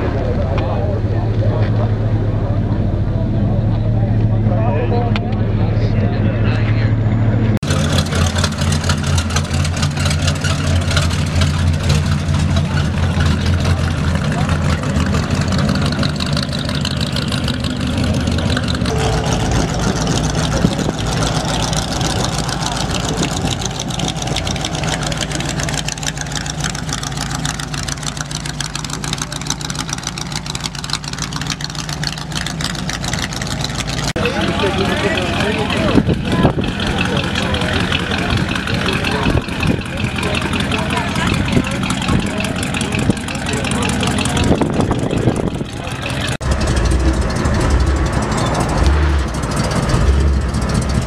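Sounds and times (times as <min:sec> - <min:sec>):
truck engine low rumble: 0:00.0 - 0:51.0
car engine driving past: 0:15.0 - 0:28.4.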